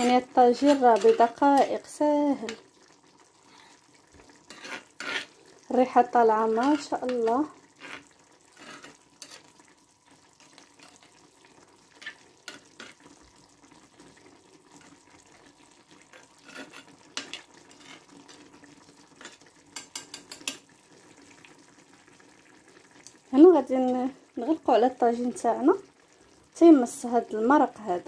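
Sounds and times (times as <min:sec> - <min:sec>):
spoon stirring sauce: 0:00.0 - 0:02.7, 0:06.4 - 0:09.6, 0:16.1 - 0:20.7
faint sauce simmering: 0:00.0 - 0:28.0.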